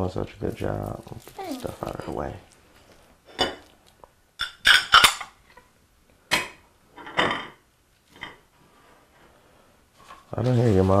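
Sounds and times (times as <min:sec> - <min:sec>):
dishes clinking and clattering: 0:03.3 - 0:03.7, 0:04.4 - 0:05.7, 0:06.3 - 0:08.5.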